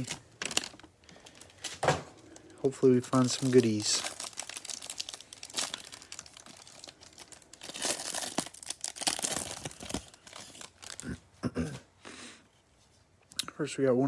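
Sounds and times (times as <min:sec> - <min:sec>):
cellophane wrapper crinkling: 0:00.0 - 0:11.2.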